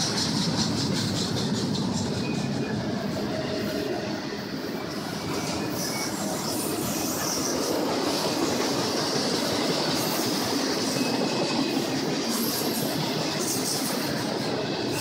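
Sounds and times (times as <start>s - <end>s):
freight train wheels rumbling on rail: 0.0s - 15.0s.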